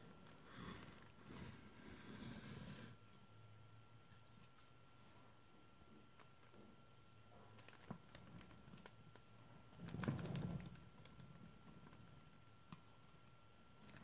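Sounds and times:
office chair swivel rumble: 0:09.7 - 0:11.2.

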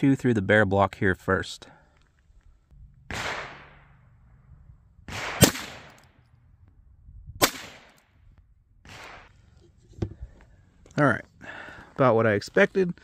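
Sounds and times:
rifle shots: 0:03.0 - 0:04.0, 0:05.0 - 0:06.2, 0:07.4 - 0:08.1, 0:08.8 - 0:09.3.

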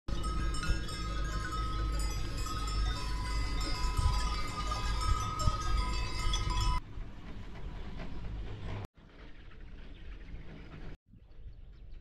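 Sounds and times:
small bells jangling: 0:00.1 - 0:06.8.

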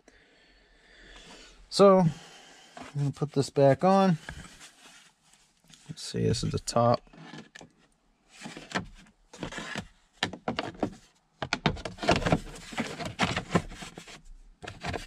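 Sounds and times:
plastic trim clicking and scraping: 0:14.6 - 0:15.0.

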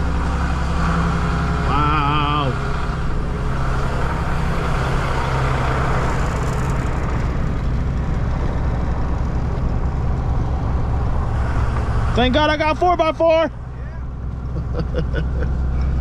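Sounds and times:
road noise: 0:00.0 - 0:16.0
truck engine hum: 0:00.0 - 0:16.0.

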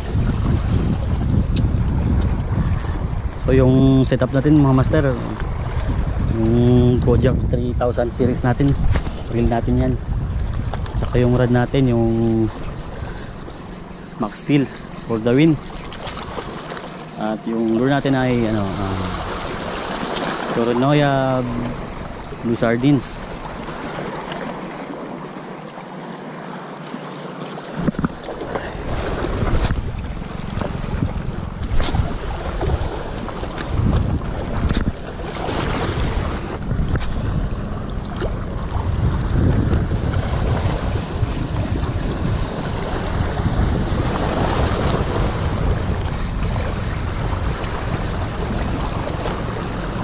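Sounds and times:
wind buffeting microphone: 0:00.0 - 0:16.6, 0:27.8 - 0:50.0
sea water lapping on rocks: 0:08.6 - 0:50.0.

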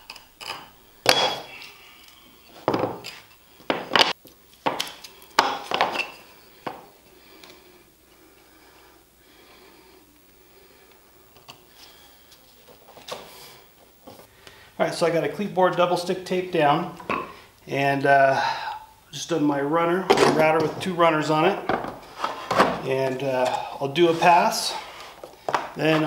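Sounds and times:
objects knocking on workbench: 0:02.7 - 0:03.0.

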